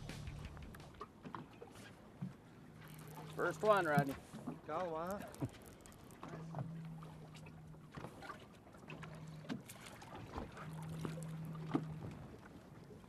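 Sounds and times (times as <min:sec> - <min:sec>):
low hum: 0:00.0 - 0:01.0, 0:02.6 - 0:04.2, 0:05.2 - 0:08.3, 0:08.9 - 0:13.0
water noise: 0:00.0 - 0:13.0.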